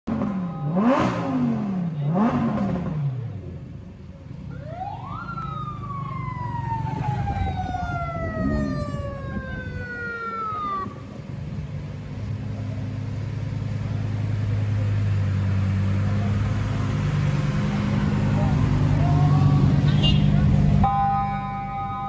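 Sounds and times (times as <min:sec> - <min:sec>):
sports car engine revving: 0:00.1 - 0:03.8
siren wail: 0:04.5 - 0:11.2, 0:20.8 - 0:22.0.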